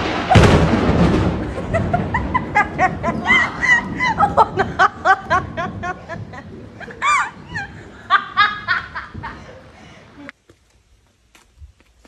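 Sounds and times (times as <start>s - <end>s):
shrill high-pitched laughter: 1.6s - 9.4s.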